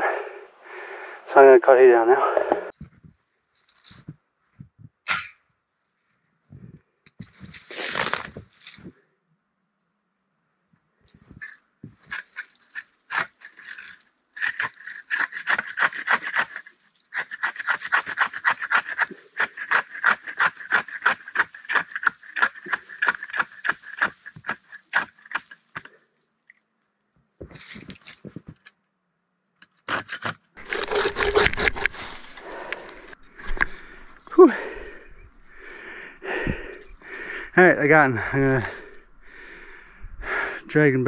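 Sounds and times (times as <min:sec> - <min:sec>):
handsaw cutting tree trunk: 0:14.4 - 0:25.9, 0:29.9 - 0:33.1
rustling: 0:30.6 - 0:34.2.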